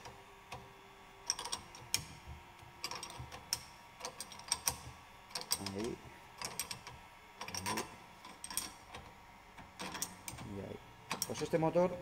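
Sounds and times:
wrench clicking on bolts: 0:01.3 - 0:02.1, 0:02.8 - 0:09.0, 0:09.8 - 0:10.5.

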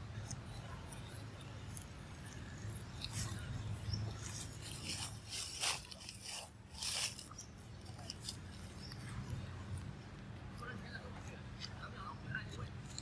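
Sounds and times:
steady low hum: 0:00.0 - 0:13.0
dry leaves rustling and crackling: 0:01.0 - 0:09.8.

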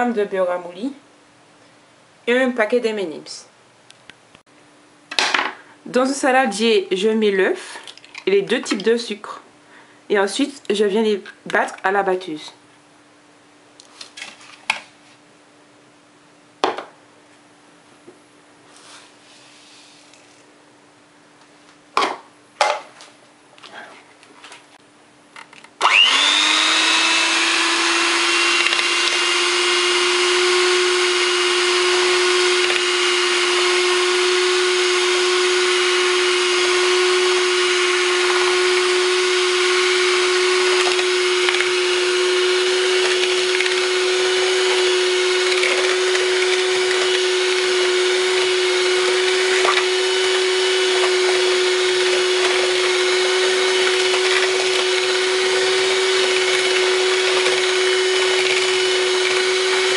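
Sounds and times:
electric hand mixer whine: 0:25.8 - 0:59.9.

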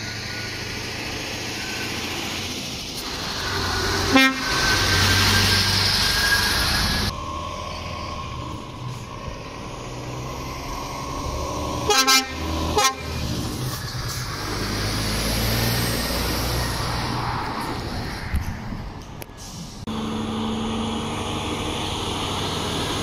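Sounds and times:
truck engines running: 0:00.0 - 0:23.0
lorry horn tooting: 0:04.0 - 0:04.7, 0:11.8 - 0:13.2.

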